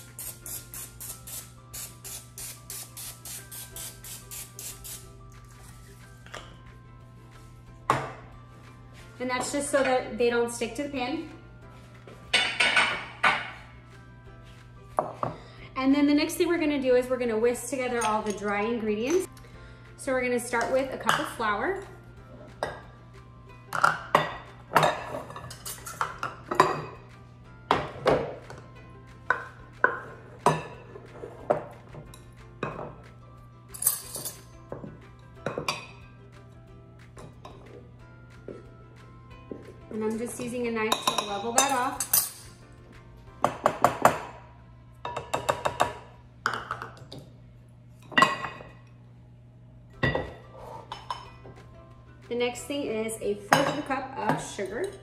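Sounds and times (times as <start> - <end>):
utensils knocking on counter: 12.3 - 13.6.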